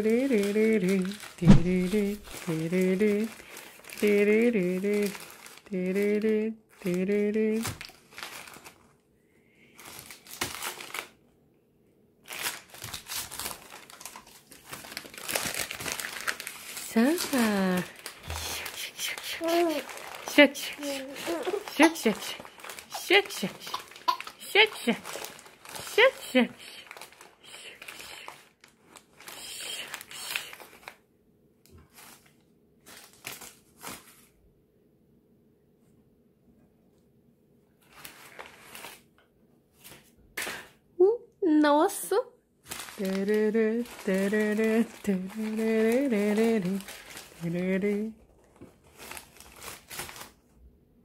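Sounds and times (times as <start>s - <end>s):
paper crinkling: 0.0s - 7.0s, 7.6s - 9.0s, 9.7s - 11.2s, 12.2s - 31.0s, 31.8s - 34.4s, 37.8s - 39.1s, 42.6s - 50.5s.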